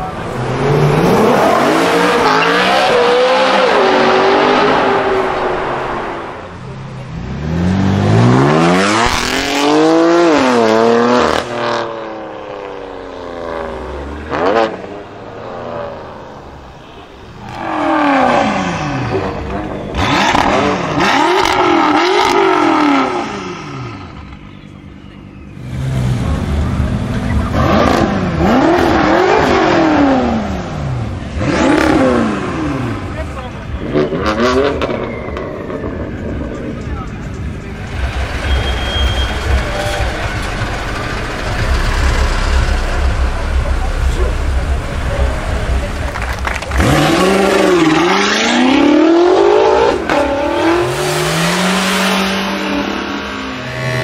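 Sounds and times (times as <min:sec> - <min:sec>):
car engines revving through gears: 0:00.0 - 0:16.3, 0:17.4 - 0:24.5, 0:25.5 - 0:54.0
exhaust cracks: 0:39.1 - 0:48.2.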